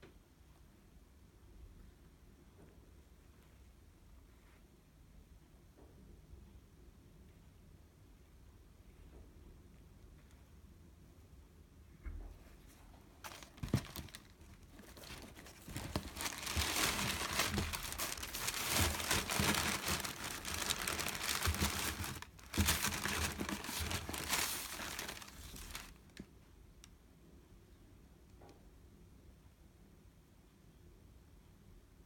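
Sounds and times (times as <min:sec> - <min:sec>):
tissue paper crinkling: 0:13.2 - 0:26.1.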